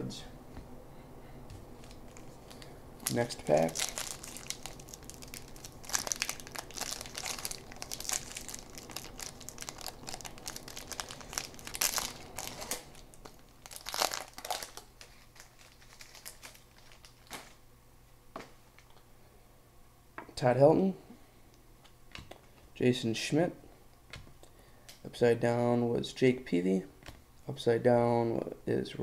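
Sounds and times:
wrapper tearing and crinkling: 1.8 - 17.6.

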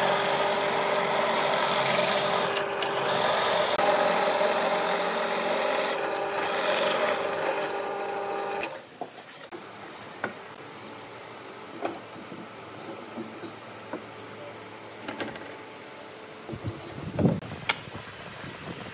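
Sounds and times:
drill bit rasping wood: 0.0 - 8.7
drill press motor hum: 0.0 - 8.8.

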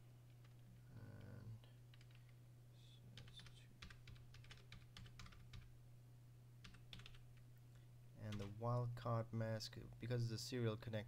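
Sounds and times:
low electrical hum: 0.0 - 11.0
typing on keyboard: 0.3 - 2.4, 3.2 - 5.7, 6.6 - 7.2, 8.3 - 8.6.

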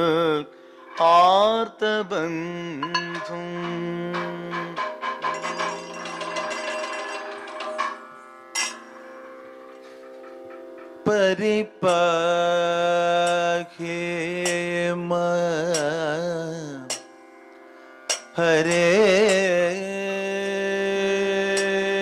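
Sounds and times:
sharp percussion strokes: 2.8 - 11.2.

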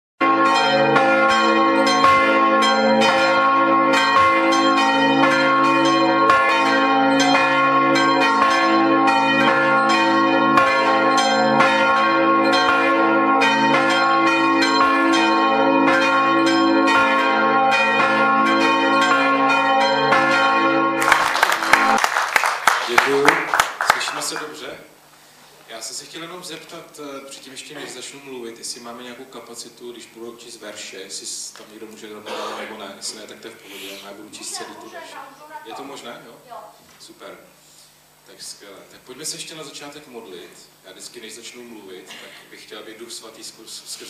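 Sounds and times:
church bells ringing: 0.2 - 22.1.

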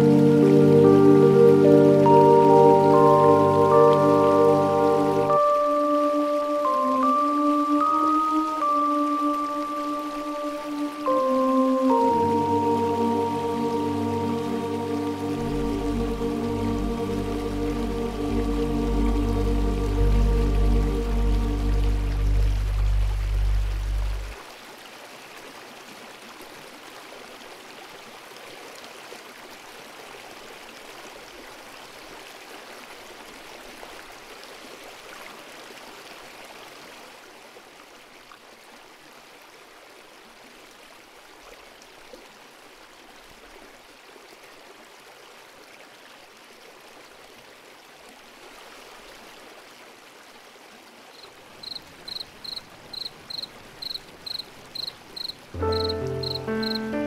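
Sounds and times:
running water: 0.0 - 57.0
cricket chirping: 51.1 - 57.0.

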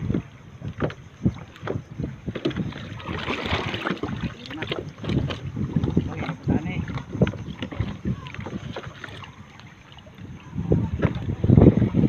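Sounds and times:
water sloshing around wading person: 0.0 - 12.0
wet net lifted from water: 2.6 - 5.4.

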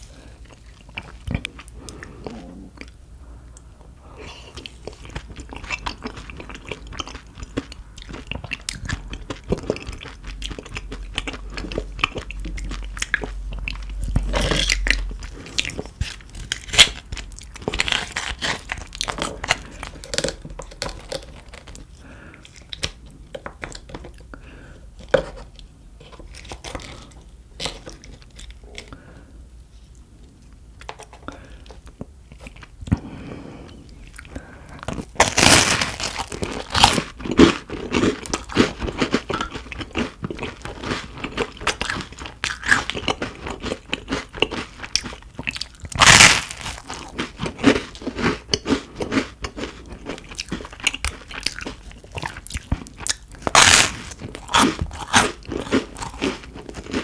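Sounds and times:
crunchy bites and chewing: 4.5 - 24.2, 34.0 - 57.0.

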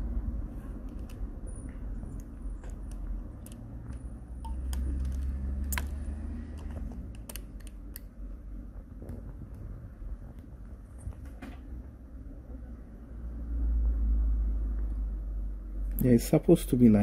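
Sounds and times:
low rumble: 8.2 - 15.2.

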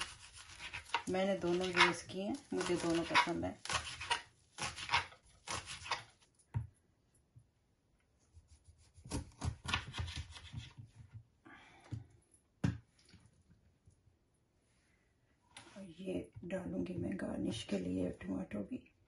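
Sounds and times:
knife chopping on cutting board: 8.6 - 10.8.

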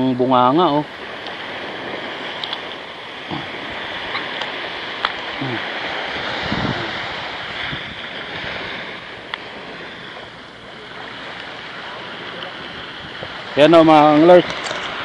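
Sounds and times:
surf washing on beach: 0.0 - 15.0
wind on microphone: 0.0 - 15.0
small clicks: 2.4 - 2.6.

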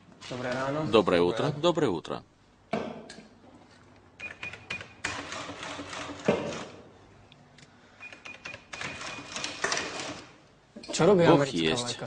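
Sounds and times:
cash register mechanical rattling: 4.4 - 6.7, 8.6 - 10.3.

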